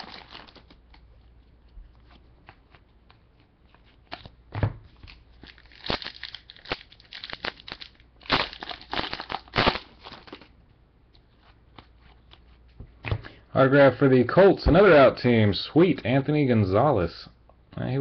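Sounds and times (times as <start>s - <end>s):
foil wrapper crinkling and tearing: 0.0s - 1.0s, 4.9s - 10.5s.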